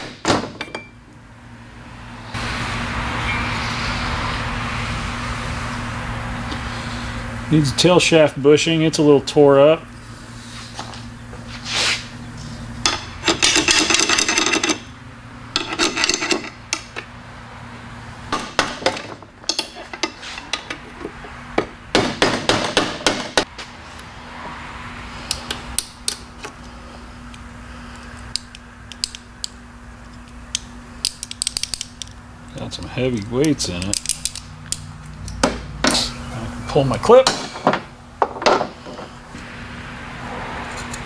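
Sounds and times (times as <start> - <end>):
steady low hum: 0.0 - 41.0
steel tools clattering on metal: 12.8 - 14.9, 15.6 - 16.9, 18.4 - 20.9.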